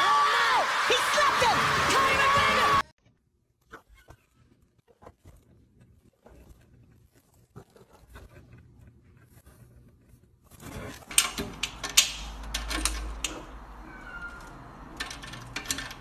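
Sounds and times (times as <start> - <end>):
key rattling in lock: 11.1 - 13.6, 14.4 - 16.0.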